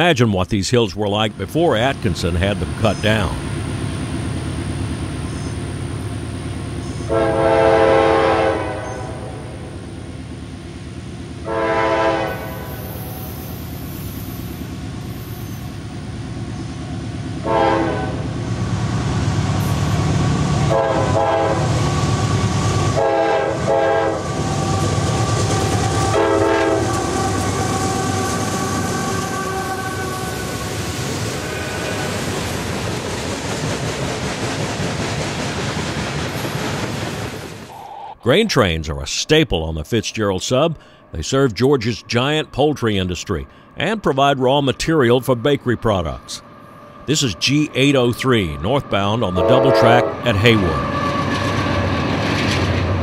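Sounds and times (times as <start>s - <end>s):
diesel engines rumbling: 0.0s - 53.0s
locomotive horn blasts: 7.0s - 9.4s, 11.4s - 13.0s, 17.4s - 18.3s, 20.6s - 21.7s, 22.9s - 25.1s, 26.0s - 30.6s, 49.3s - 51.2s
train cars rolling and clattering: 8.6s - 37.7s, 49.4s - 53.0s.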